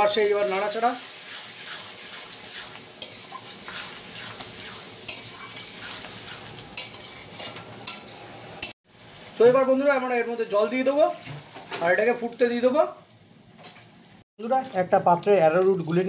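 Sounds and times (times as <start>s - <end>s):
frying sizzle: 0.0s - 15.4s
metal spatula scraping a wok: 0.1s - 8.8s.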